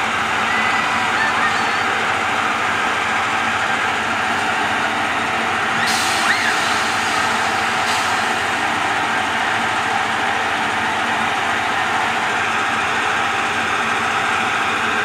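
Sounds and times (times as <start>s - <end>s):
amusement ride mechanical running: 0.0s - 15.0s
hiss: 5.8s - 8.5s.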